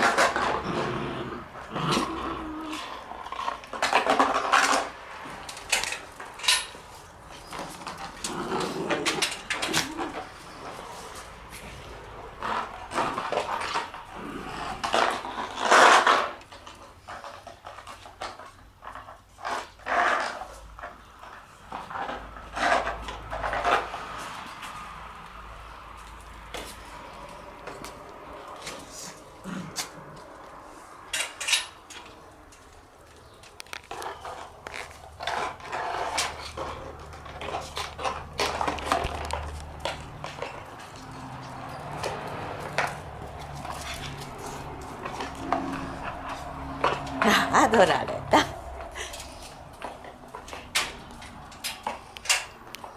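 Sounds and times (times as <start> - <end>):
puppy vocal sounds: 0.0 - 4.2, 7.4 - 16.2, 27.6 - 31.0, 40.3 - 50.2
puppies scuffling: 0.0 - 52.9.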